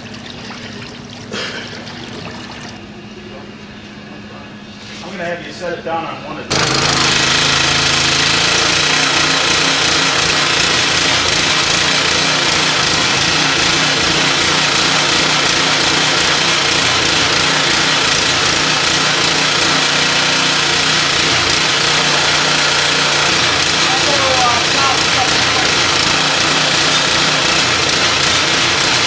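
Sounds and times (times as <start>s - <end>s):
machine hum: 0.0s - 29.0s
pressure washer jet hissing: 6.5s - 29.0s.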